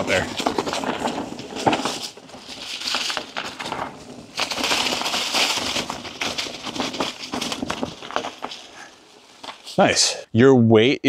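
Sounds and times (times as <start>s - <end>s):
bike tyres crunching on dirt: 0.0s - 9.9s
crackly hiss: 0.0s - 10.3s.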